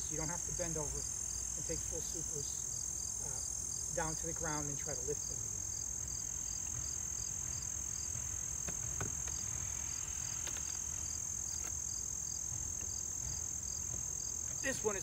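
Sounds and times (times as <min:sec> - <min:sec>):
insects droning: 0:00.0 - 0:15.0
knocks of wooden hive boxes: 0:06.1 - 0:15.0.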